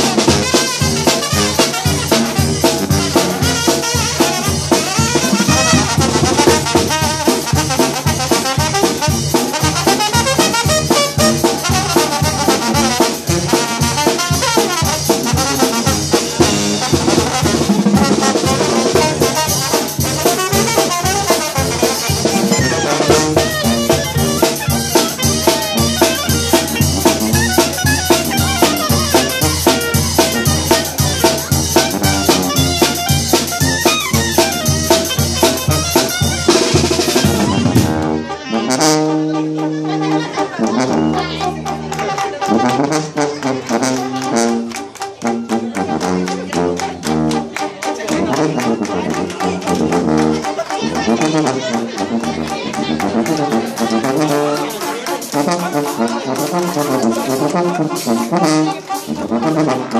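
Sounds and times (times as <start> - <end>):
drum kit steady beat: 0.0 - 38.1
brass and tuba playing: 0.0 - 59.9.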